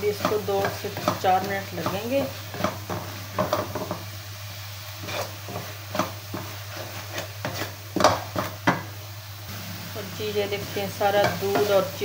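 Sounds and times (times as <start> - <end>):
wooden spatula scraping metal pan: 0.0 - 4.0, 5.0 - 8.6.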